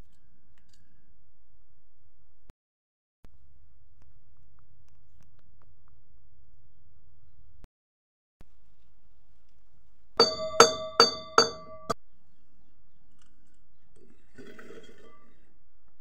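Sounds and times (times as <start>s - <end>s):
pestle clanging in metal mortar: 10.2s - 12.0s.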